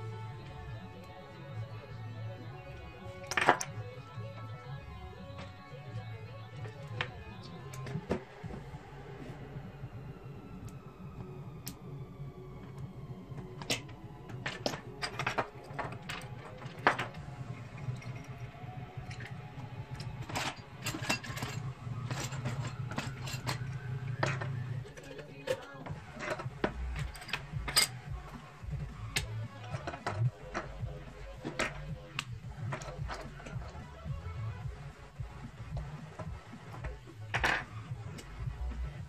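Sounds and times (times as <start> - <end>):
low hum: 0.0 - 25.1.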